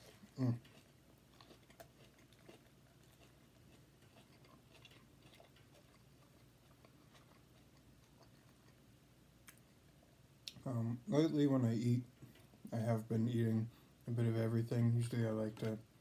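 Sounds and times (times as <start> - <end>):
close-mouthed chewing: 0.0 - 10.7, 12.1 - 12.7
soft mouth clicks: 10.4 - 10.6.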